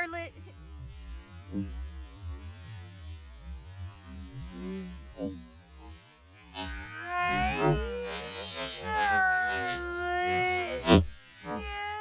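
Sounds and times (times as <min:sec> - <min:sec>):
drawn-out warbling: 0:06.6 - 0:12.0.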